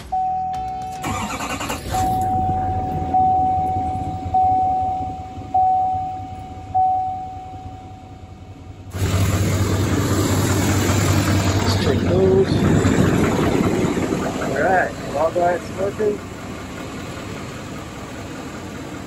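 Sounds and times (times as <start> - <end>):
car warning chime dinging: 0.0 - 8.7
diesel engine starting and idling: 0.0 - 19.0.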